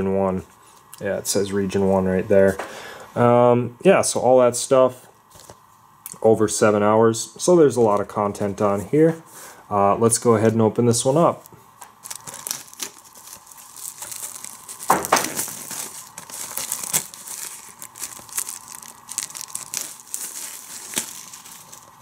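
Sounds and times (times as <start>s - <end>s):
plastic shrink wrap tearing: 11.8s - 22.0s.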